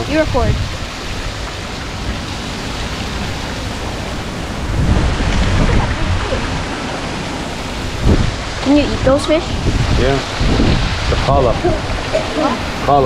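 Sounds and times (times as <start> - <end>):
small waterfalls rushing: 0.0 - 13.0
wind buffeting microphone: 0.0 - 13.0.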